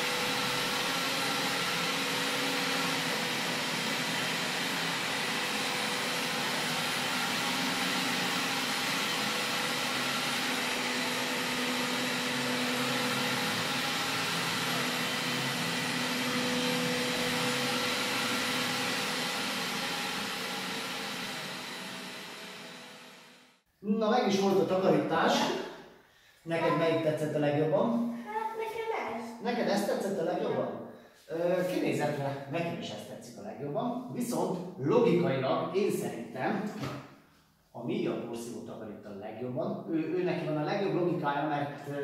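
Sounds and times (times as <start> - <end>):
robot vacuum cleaner running: 0.0 - 23.6.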